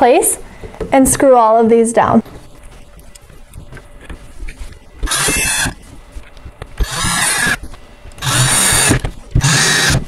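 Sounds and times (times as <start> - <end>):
cordless drill whirring: 5.0 - 5.8, 6.8 - 10.0.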